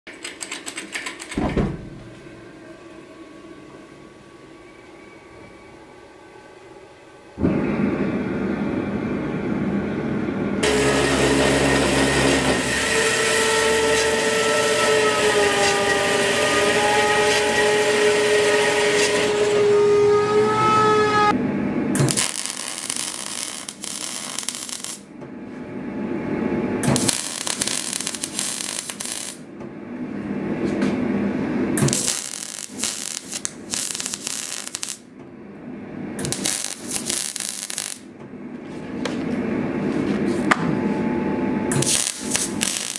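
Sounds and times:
steady roar with whistle tones: 0:02.3 - 0:11.1, 0:12.5 - 0:21.8
welder crackling sizzle: 0:10.6 - 0:19.7, 0:22.0 - 0:25.1, 0:26.8 - 0:29.5, 0:31.8 - 0:35.0, 0:36.2 - 0:38.1, 0:41.7 - 0:42.9.

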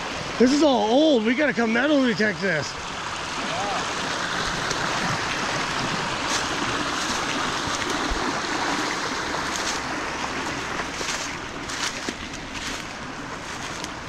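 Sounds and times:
brook rushing over rocks: 0:03.4 - 0:14.0
footsteps on dry leaves: 0:05.1 - 0:14.0.

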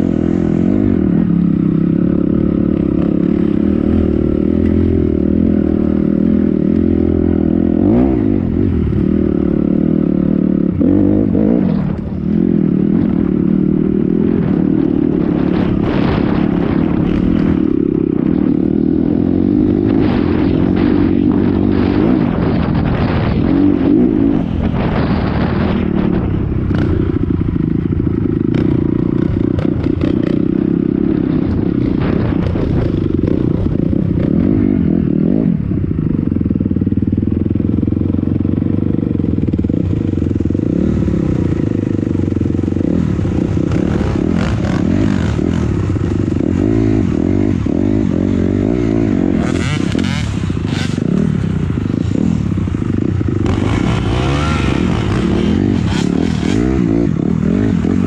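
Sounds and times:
dirt bike engine revving: 0:00.0 - 0:35.6, 0:39.4 - 0:58.0
knocks and rattles from bike: 0:19.5 - 0:35.2.

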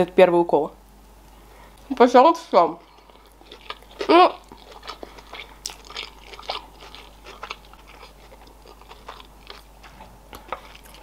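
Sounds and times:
person chewing food: 0:02.8 - 0:11.0.

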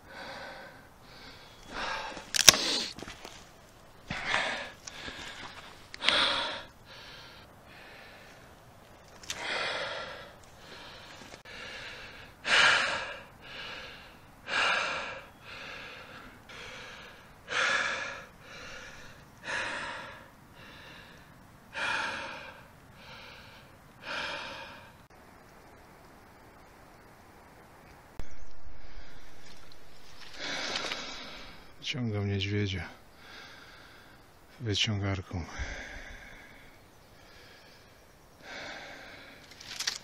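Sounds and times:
person breathing hard: 0:00.0 - 0:03.0, 0:04.1 - 0:08.5, 0:09.2 - 0:25.1, 0:28.8 - 0:31.8, 0:33.0 - 0:34.3, 0:35.5 - 0:40.0.

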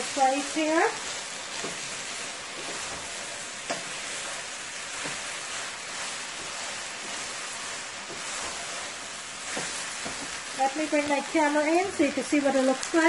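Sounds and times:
wooden spatula scraping a pot: 0:00.0 - 0:12.0
food sizzling in a pot: 0:00.0 - 0:13.0.

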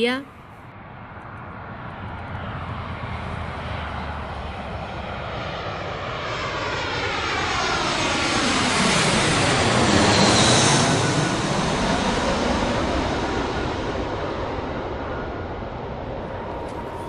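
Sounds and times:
airplane engine: 0:00.7 - 0:17.0.

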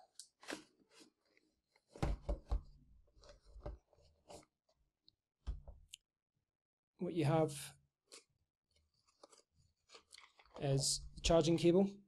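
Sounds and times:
cardboard packaging handled: 0:09.0 - 0:10.6.

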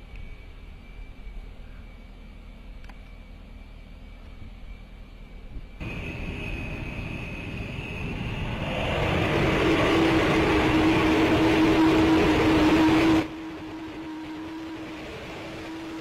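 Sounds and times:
steady hum: 0:00.0 - 0:16.0
engine running: 0:05.8 - 0:16.0.

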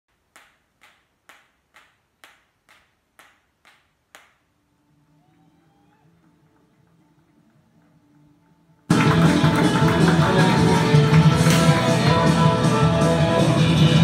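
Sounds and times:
faint guitar music: 0:04.8 - 0:14.0.

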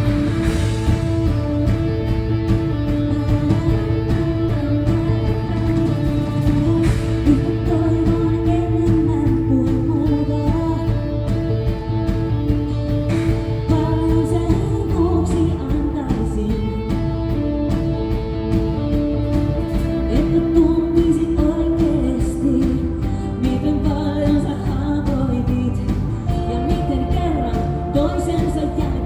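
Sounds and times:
bass guitar: 0:00.0 - 0:29.0
drums playing a steady beat: 0:00.0 - 0:29.0
woman singing into a microphone: 0:07.1 - 0:11.4, 0:13.7 - 0:17.4, 0:19.9 - 0:29.0.

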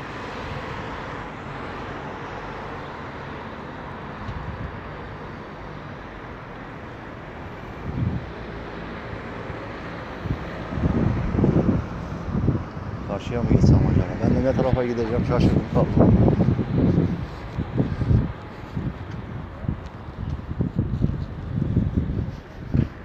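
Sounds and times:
traffic hum: 0:00.0 - 0:23.0
wind buffeting microphone: 0:07.5 - 0:23.0.

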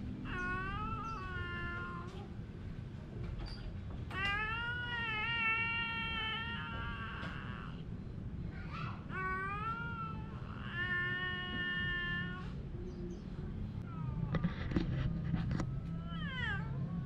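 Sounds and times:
cats yowling: 0:00.2 - 0:02.4, 0:04.1 - 0:08.0, 0:08.7 - 0:12.7, 0:13.8 - 0:14.8, 0:15.6 - 0:17.0.

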